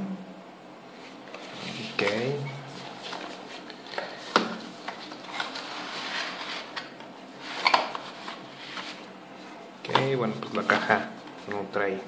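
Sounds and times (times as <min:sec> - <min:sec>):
cardboard rustling and scraping: 0:01.0 - 0:09.1.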